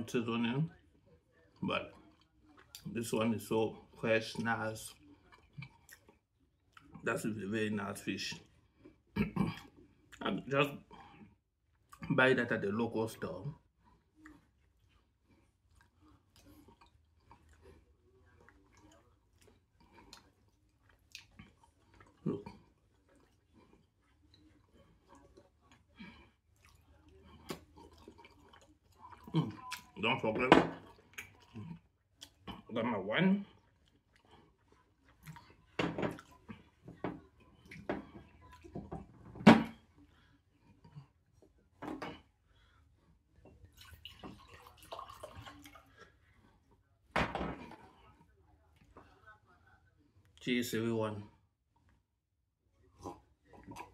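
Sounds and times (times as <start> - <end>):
chewing soft food: 0.0 - 50.5, 51.2 - 53.9
wet mouth clicks: 18.5 - 25.5.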